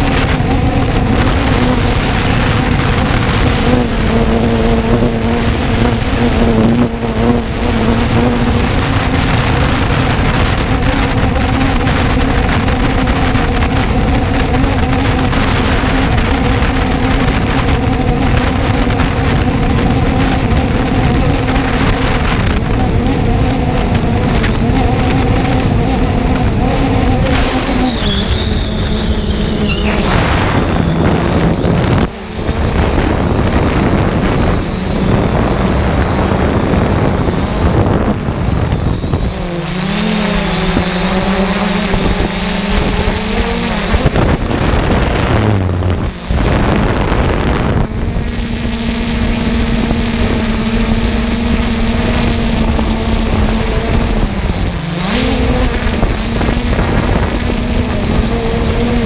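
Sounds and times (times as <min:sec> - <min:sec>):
drone motors and propellers humming: 0:00.0 - 0:59.0.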